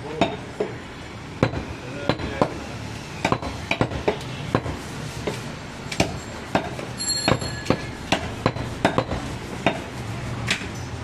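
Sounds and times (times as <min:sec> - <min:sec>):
high ringing tone: 0:07.0 - 0:08.0.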